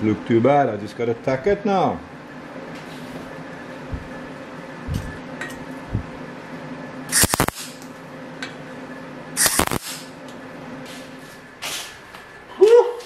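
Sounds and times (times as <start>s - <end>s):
steady low hum: 0.0s - 12.6s
welder crackling sizzle: 7.2s - 7.9s, 9.4s - 10.1s.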